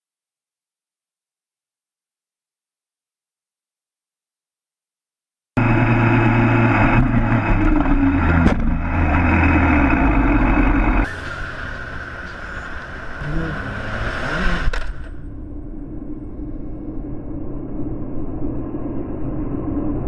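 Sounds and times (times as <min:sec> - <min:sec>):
motorcycle engine running hard: 0:05.6 - 0:15.2
quieter motorcycle engine: 0:05.6 - 0:16.8.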